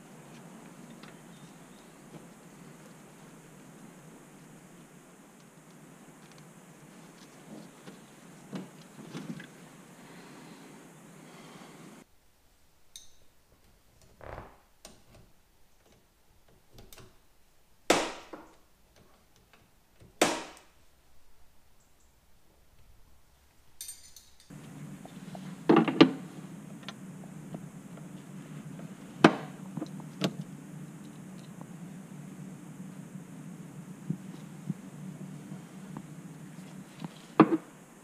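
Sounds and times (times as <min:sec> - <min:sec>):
steady low hum: 0:00.0 - 0:12.1, 0:24.5 - 0:38.0.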